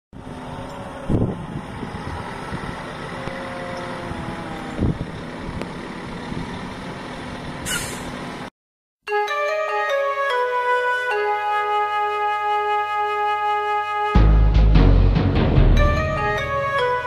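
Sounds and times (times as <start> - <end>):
loud rumbling gusts: 1.0 - 3.2
brief hiss: 7.6 - 8.2.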